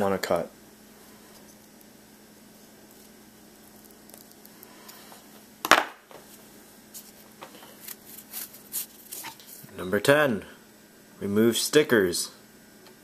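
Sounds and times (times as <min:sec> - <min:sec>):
faint steady hum: 0:00.0 - 0:13.0
rope rubbing and handling: 0:06.2 - 0:09.6.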